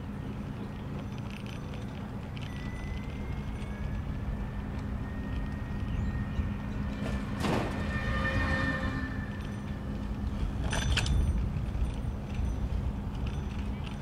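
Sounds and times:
wind and bicycle tyre rumble: 0.0s - 14.0s.

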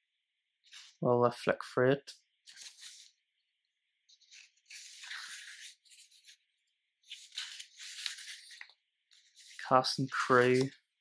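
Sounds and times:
paper pages rustling: 0.6s - 1.0s, 2.3s - 3.3s, 4.1s - 11.0s.

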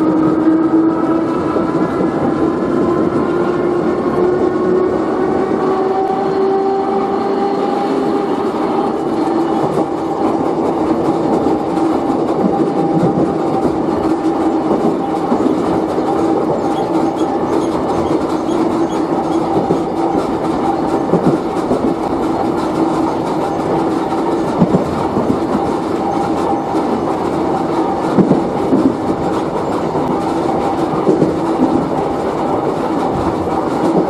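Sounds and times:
train running noise: 0.0s - 34.0s
wheels clicking over rail joints: 7.5s - 34.0s.

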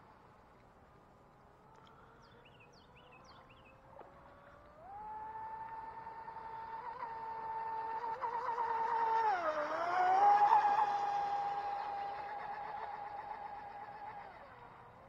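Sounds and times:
distant rc boat motor whine: 0.0s - 15.0s
bird chirping: 2.1s - 3.8s.

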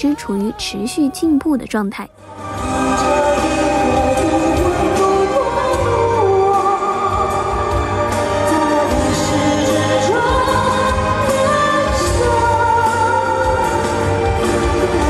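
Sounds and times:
man singing in high voice: 2.4s - 15.0s.

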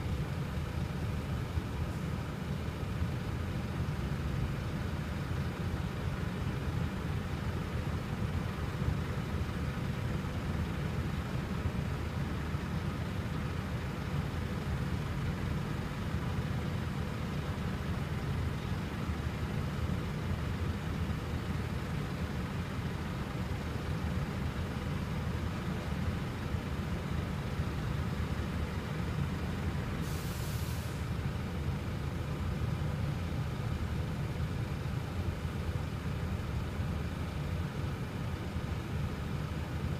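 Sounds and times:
diesel coach engines idling: 0.0s - 39.9s
brief hiss: 30.0s - 31.1s.

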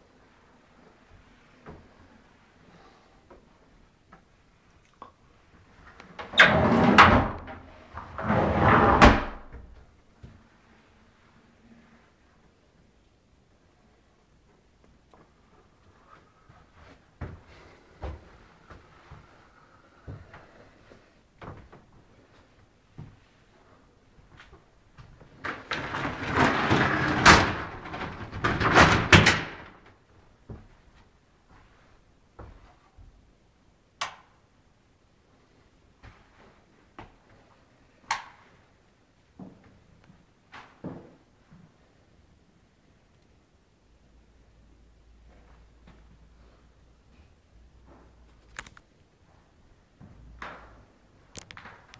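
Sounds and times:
sliding door rumbling on track: 6.4s - 9.4s, 25.5s - 29.7s.

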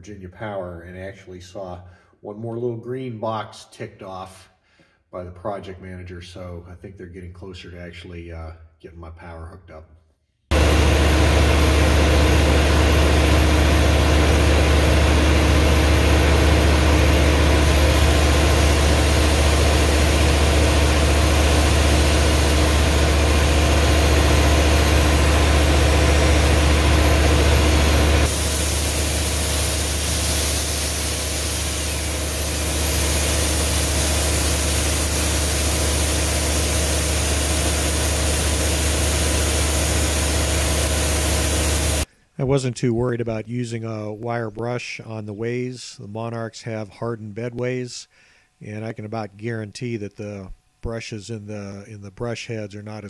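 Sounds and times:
angle grinder wire wheel whine: 10.5s - 42.1s
generator humming: 10.5s - 42.1s.

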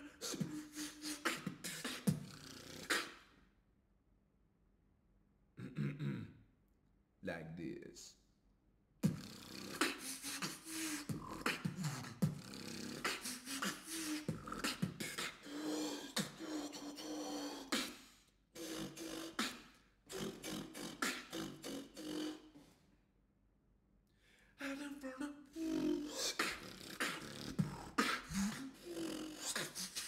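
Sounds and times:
vocal beatboxing: 0.0s - 3.3s, 5.6s - 6.3s, 9.0s - 22.7s, 25.5s - 30.0s.

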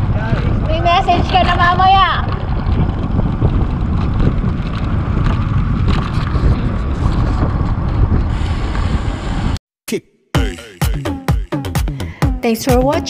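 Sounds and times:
bicycle riding noise: 0.0s - 9.6s
wind buffeting microphone: 0.0s - 9.6s.

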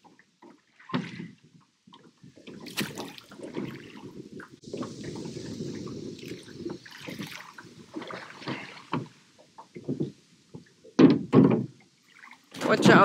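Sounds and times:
oars splashing in water: 0.0s - 13.0s
boat bumps: 7.9s - 11.9s, 12.5s - 13.0s.

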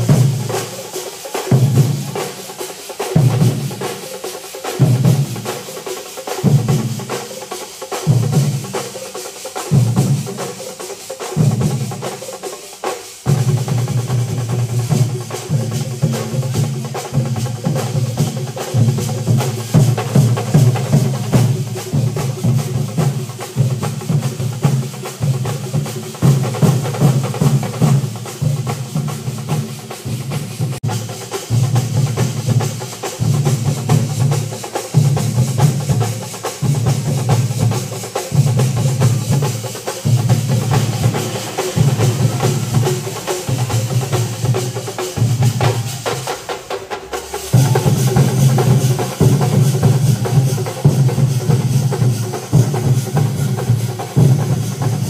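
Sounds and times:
clattering percussion strokes: 0.0s - 55.0s
deep drum beat: 38.4s - 55.0s.

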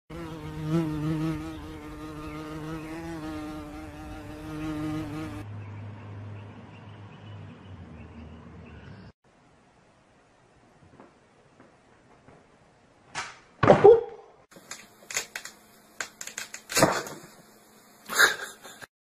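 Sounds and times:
flying insect buzzing: 0.1s - 5.4s, 14.6s - 18.8s.

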